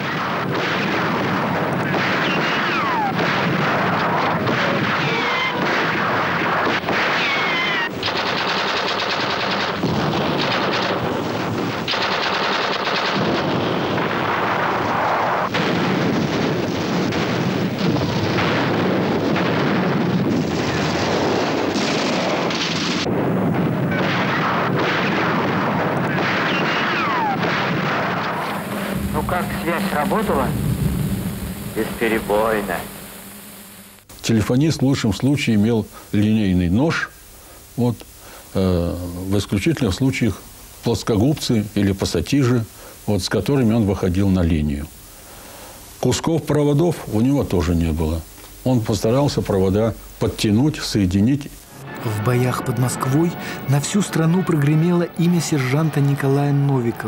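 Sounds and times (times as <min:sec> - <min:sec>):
gunfire: 0:00.0 - 0:30.5
explosions: 0:00.0 - 0:33.0, 0:51.6 - 0:57.0.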